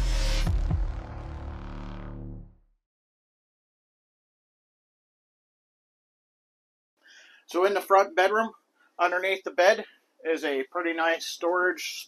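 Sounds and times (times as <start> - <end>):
logo music with held tones: 0.0 - 2.7.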